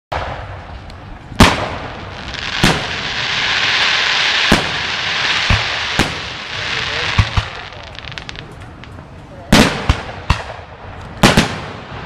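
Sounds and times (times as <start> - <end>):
firework shells bursting: 0.2 - 8.8
crackling hiss: 0.2 - 12.0.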